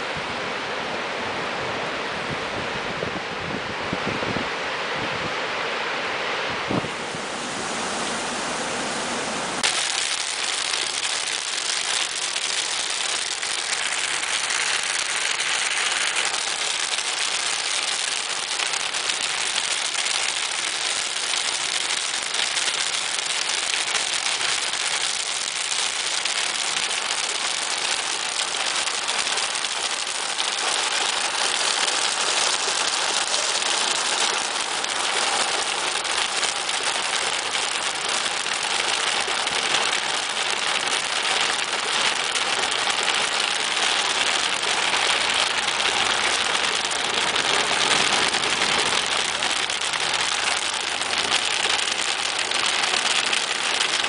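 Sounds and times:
soft wind noise: 0:00.0 - 0:09.6
heavy rain on car windshield: 0:09.3 - 0:54.0.

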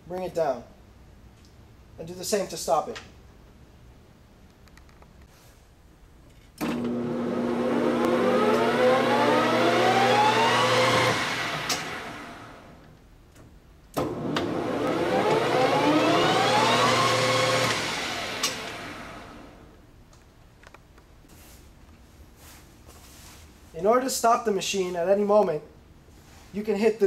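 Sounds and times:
lathe spindle humming and whining: 0:06.6 - 0:12.8, 0:14.0 - 0:19.6.

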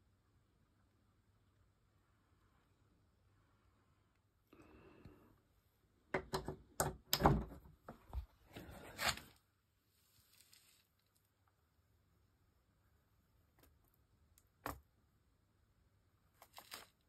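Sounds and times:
objects being handled: 0:16.3 - 0:17.0.

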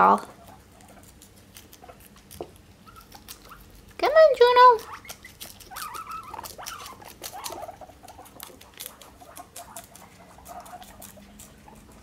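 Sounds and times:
guinea pigs munching lettuce: 0:00.0 - 0:12.0.

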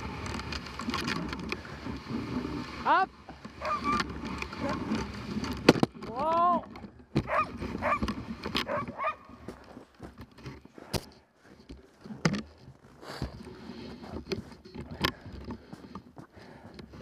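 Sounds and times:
sled knocks and rattles: 0:00.0 - 0:17.0
sled runners rumbling on snow: 0:00.0 - 0:17.0
dog yelp: 0:03.6 - 0:04.0.

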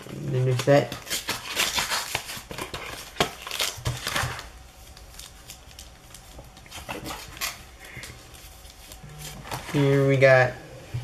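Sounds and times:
packaging crinkling and rustling: 0:00.0 - 0:10.2.

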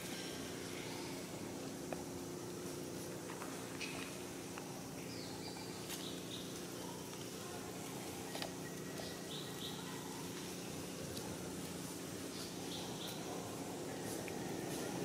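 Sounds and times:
low hum and hiss: 0:00.0 - 0:15.0
faint high chirps: 0:05.0 - 0:10.5.

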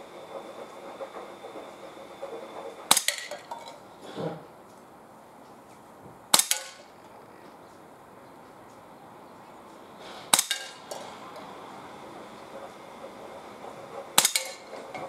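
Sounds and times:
air pistol shot crack: 0:06.3 - 0:06.8, 0:10.3 - 0:10.8.

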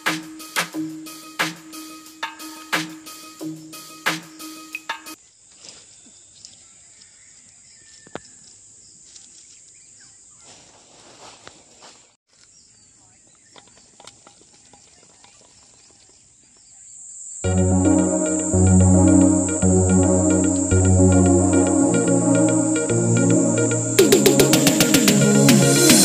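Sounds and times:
insects droning: 0:16.7 - 0:26.0.

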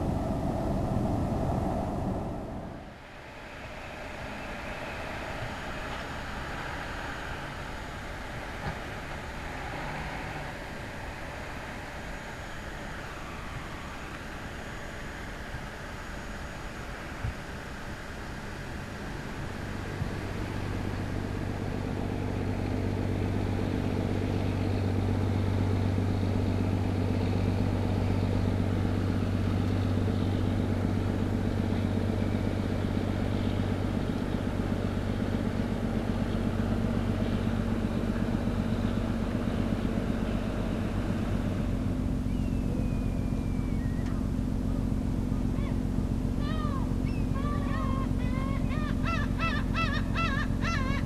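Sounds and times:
boat diesel engine droning: 0:00.0 - 0:51.0
gulls calling: 0:42.2 - 0:44.3, 0:45.4 - 0:51.0.

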